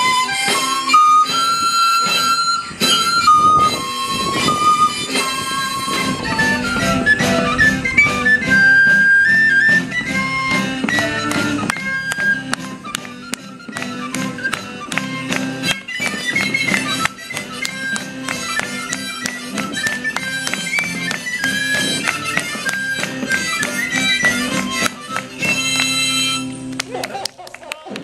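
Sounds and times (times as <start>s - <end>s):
high melody line: 0.0s - 26.8s
strummed stringed instrument: 0.0s - 27.1s.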